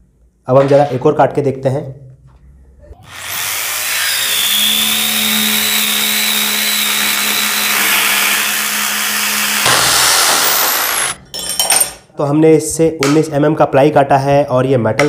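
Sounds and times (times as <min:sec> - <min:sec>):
electric drill motor whine: 0:03.0 - 0:11.2.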